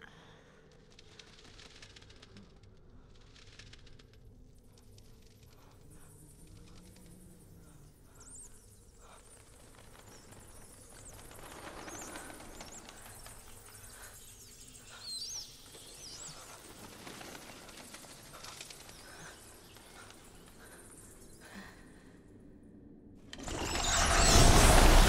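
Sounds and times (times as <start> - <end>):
rustle of wings: 0.8 - 21.7, 23.3 - 25.0
bats squeaking: 5.5 - 21.5.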